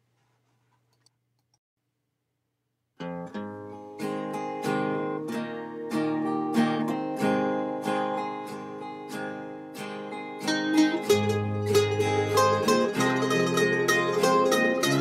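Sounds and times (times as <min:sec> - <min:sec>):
acoustic guitar strumming: 0:03.0 - 0:15.0.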